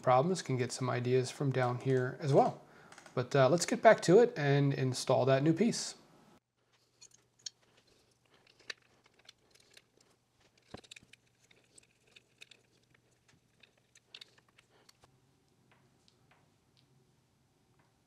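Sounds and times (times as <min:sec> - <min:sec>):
small parts and tools clicking: 0:06.7 - 0:16.9.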